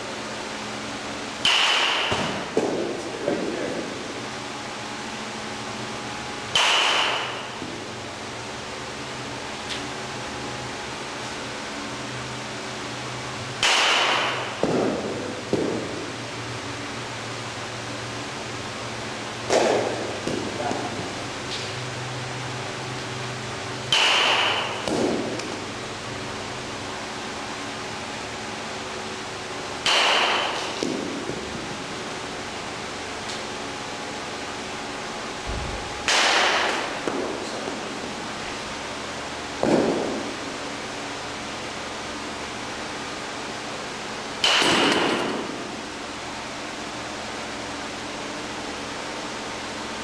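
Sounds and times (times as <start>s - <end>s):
metal bat hitting ball: 1.4s - 2.9s, 6.5s - 7.6s, 13.6s - 15.9s, 19.5s - 20.9s, 23.9s - 25.6s, 29.8s - 31.4s, 36.0s - 37.4s, 44.4s - 45.7s.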